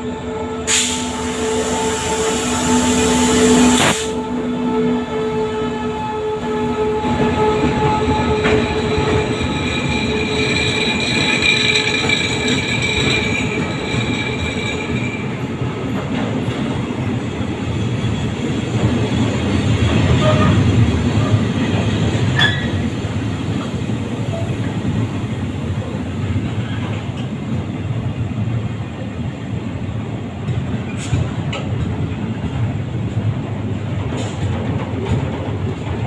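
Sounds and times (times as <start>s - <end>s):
train wheels rumbling on rails: 0.0s - 36.0s
high wheel squeal: 8.0s - 15.4s, 22.3s - 22.9s.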